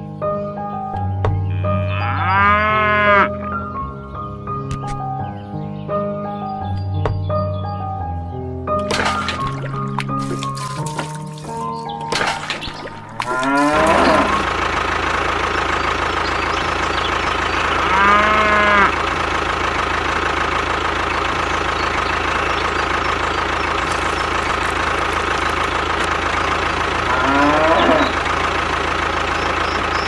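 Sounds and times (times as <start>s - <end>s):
cow mooing: 1.4s - 3.6s, 13.2s - 14.5s, 17.6s - 19.0s, 27.0s - 28.2s
tractor engine idling: 3.7s - 30.0s
animal call: 12.6s - 14.6s, 15.7s - 19.1s, 27.0s - 28.4s.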